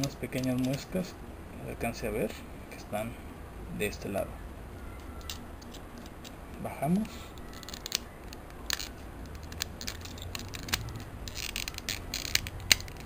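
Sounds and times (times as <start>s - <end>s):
plastic toy parts clicking: 0.0s - 1.0s, 5.0s - 6.4s, 7.4s - 13.0s.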